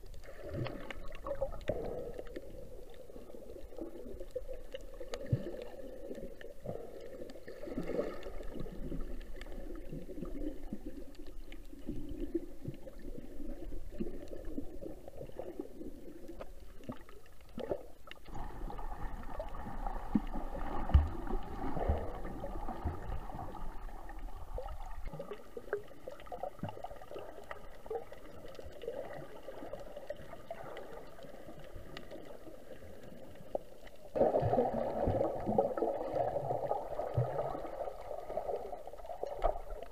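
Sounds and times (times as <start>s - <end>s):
water gurgling underwater: 0.0s - 39.9s.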